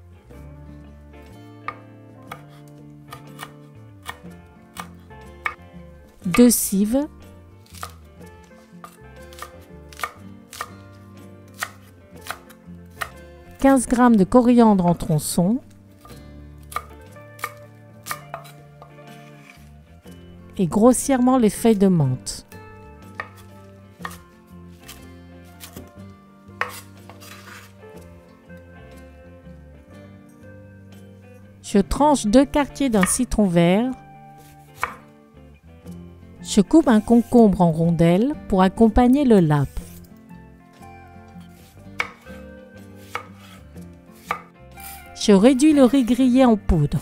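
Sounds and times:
soft background music: 0.0 - 47.0
cleaver chopping on wooden board: 1.7 - 4.2, 8.8 - 10.7, 11.5 - 13.2, 16.7 - 19.6, 23.2 - 23.4, 24.0 - 24.2, 26.6 - 27.7, 34.8 - 35.0, 42.0 - 42.2, 43.0 - 43.6, 44.2 - 45.0.

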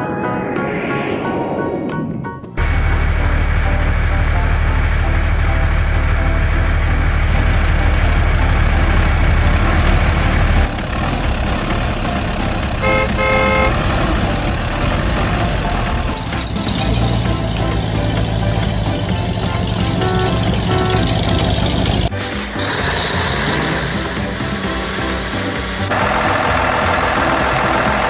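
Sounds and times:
vehicle engine rumble: 1.8 - 28.0
vehicle horn toots: 12.8 - 13.9, 19.8 - 21.6.

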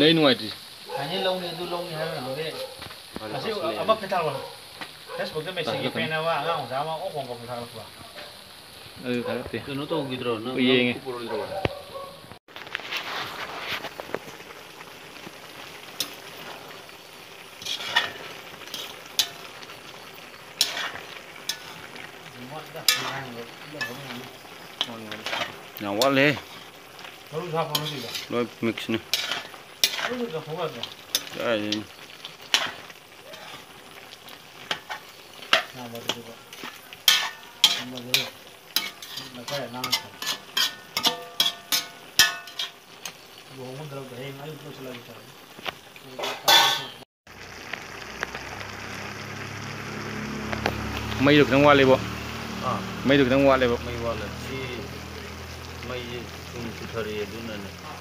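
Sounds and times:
meat sizzling in a pan: 0.0 - 58.0
metal spoon clinking on pan: 17.6 - 19.5, 22.8 - 23.2, 23.8 - 24.1, 37.0 - 42.8, 46.2 - 47.0
metal spoon clanking on pan: 17.6 - 19.6, 20.6 - 21.8, 22.8 - 24.2, 24.8 - 26.6, 27.6 - 28.3, 29.1 - 31.8, 34.7 - 43.2, 46.2 - 47.0.

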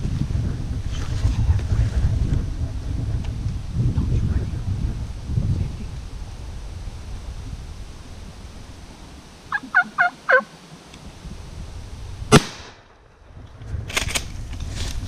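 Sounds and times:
turkey yelps: 9.5 - 10.5
shotgun blast: 12.3 - 13.0.

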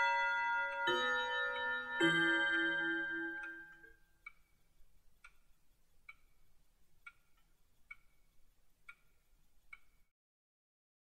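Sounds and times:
clock chime ringing: 0.0 - 3.9
clock ticking: 0.0 - 10.1.

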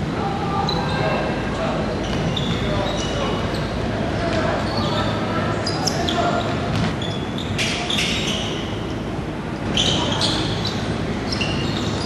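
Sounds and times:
sneakers squeaking on hardwood: 1.9 - 9.0, 9.6 - 12.0.

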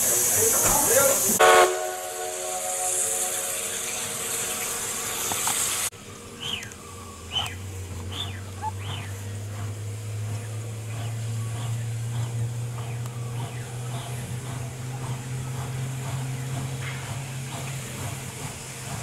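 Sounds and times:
steam locomotive hissing: 0.0 - 19.0
steam whistle chord: 1.4 - 5.4
bird calling with falling whistles: 2.4 - 9.2.

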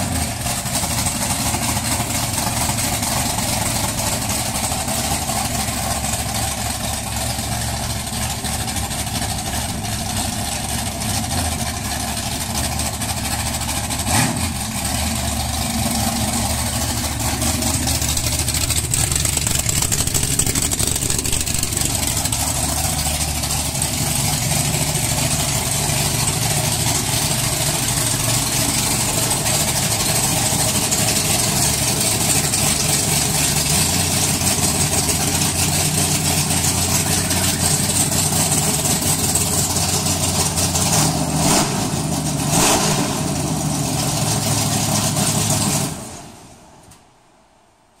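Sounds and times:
car engine idling: 0.0 - 46.8.

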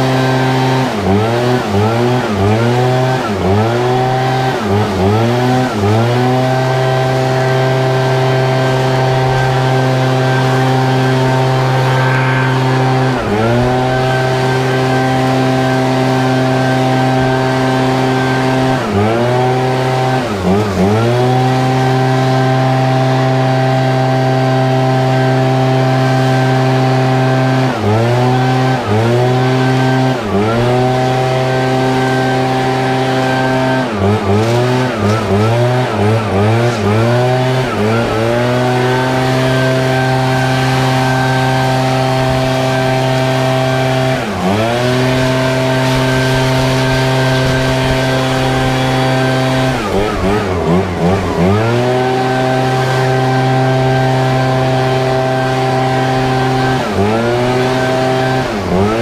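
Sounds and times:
leaf blower engine at full throttle: 0.0 - 59.0
air rushing through tube: 10.8 - 16.4.

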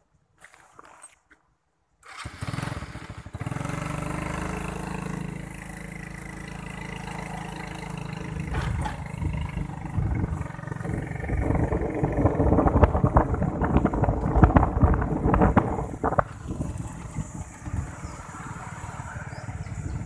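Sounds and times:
small motorbike engine running: 2.1 - 20.0.

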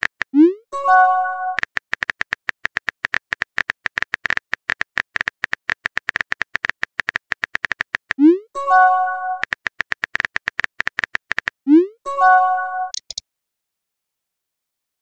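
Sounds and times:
rapid keyboard clicks: 0.0 - 0.4, 1.5 - 8.2, 9.4 - 11.6, 12.9 - 13.2.

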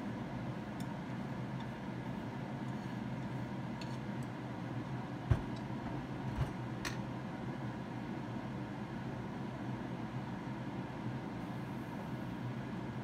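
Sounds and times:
steady hum: 0.0 - 13.0
chopsticks scraping a pan: 2.6 - 4.1.

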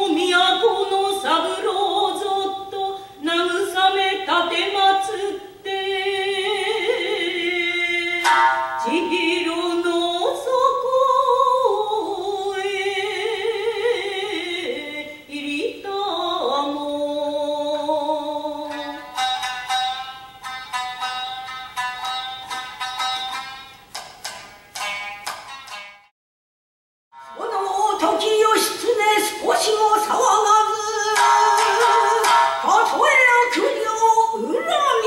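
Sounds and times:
plucked lute strings: 8.0 - 10.2, 18.6 - 26.1, 30.2 - 33.8.

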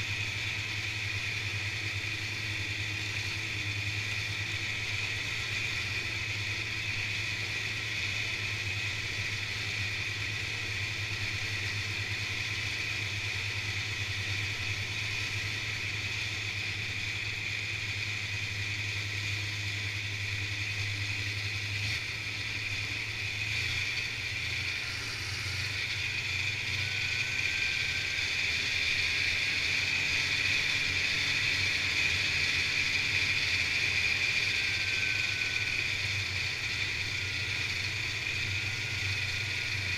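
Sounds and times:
snowmobile engine running: 0.0 - 39.9.

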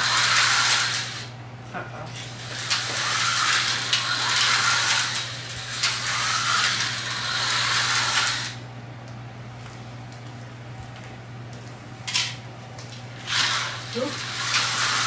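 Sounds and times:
slot car motor whine: 0.0 - 1.4, 2.2 - 8.7, 13.2 - 15.0.

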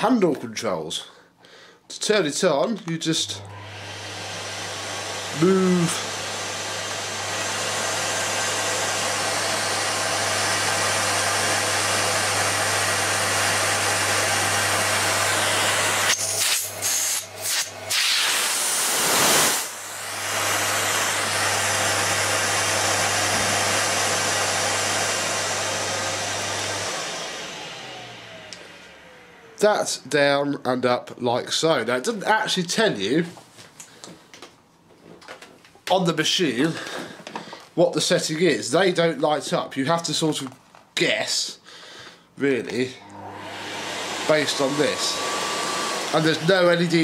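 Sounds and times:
vacuum cleaner running: 3.0 - 30.2, 36.4 - 39.0, 42.5 - 47.0.

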